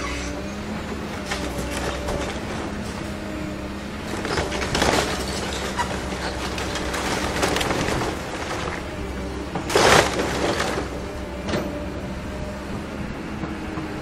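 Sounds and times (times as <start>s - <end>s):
diesel engine running: 0.0s - 14.0s
splintering timber crashes: 4.2s - 11.0s.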